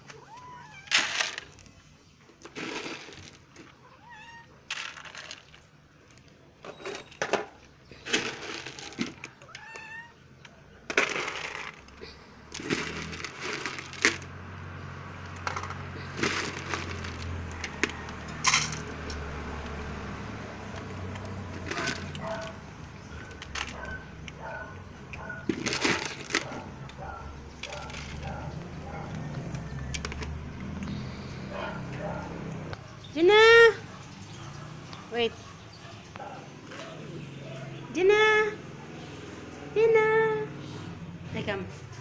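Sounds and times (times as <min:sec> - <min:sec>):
cats meowing: 0:00.0 - 0:01.2, 0:03.6 - 0:04.7, 0:09.2 - 0:10.6.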